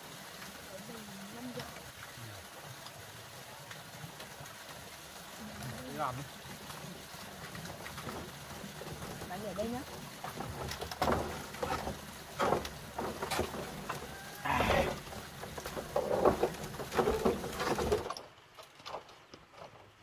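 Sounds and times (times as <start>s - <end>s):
knocks and creaks of bamboo furniture: 7.4s - 20.0s.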